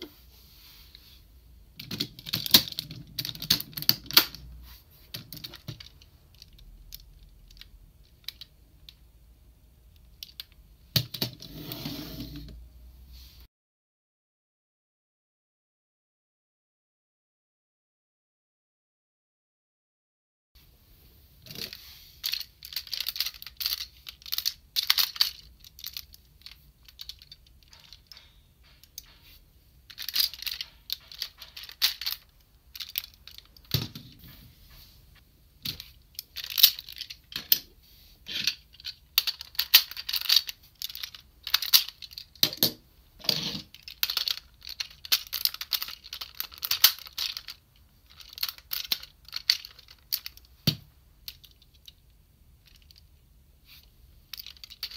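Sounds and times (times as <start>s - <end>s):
plastic toy parts clicking: 1.8s - 4.4s, 5.1s - 9.0s, 9.9s - 11.3s, 21.5s - 29.2s, 29.8s - 34.0s, 35.6s - 37.7s, 38.3s - 53.1s, 54.3s - 54.9s.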